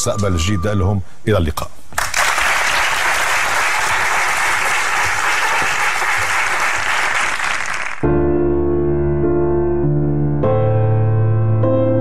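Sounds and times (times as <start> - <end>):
audience applauding: 2.0 - 8.0
piano music: 8.0 - 12.0.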